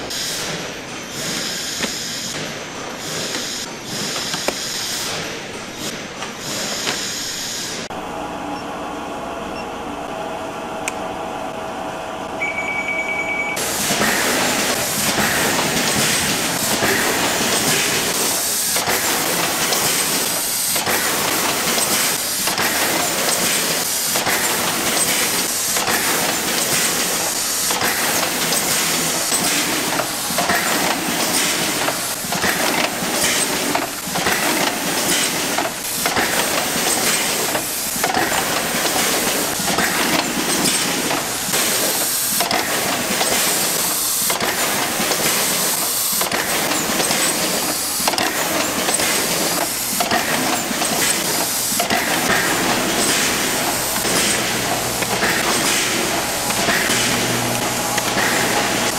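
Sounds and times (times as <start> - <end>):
factory machinery hissing: 0.0 - 12.2, 13.4 - 58.9
machinery clattering rattle: 13.6 - 58.9.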